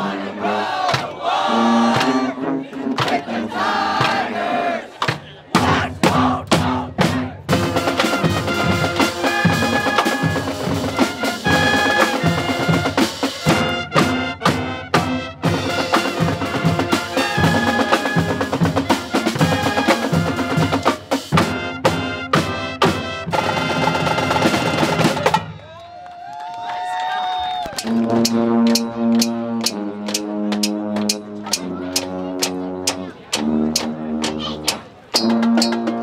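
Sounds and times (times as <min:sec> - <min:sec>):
pep band playing brass: 0:00.0 - 0:25.6, 0:27.7 - 0:36.0
steady drum beat: 0:05.0 - 0:25.5, 0:27.8 - 0:36.0.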